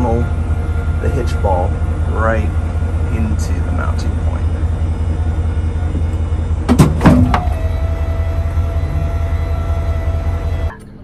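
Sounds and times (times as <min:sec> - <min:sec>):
faint steady tone: 0:00.0 - 0:11.0
truck engine rumbling: 0:00.0 - 0:11.0
metal hitch clunks: 0:05.9 - 0:08.1.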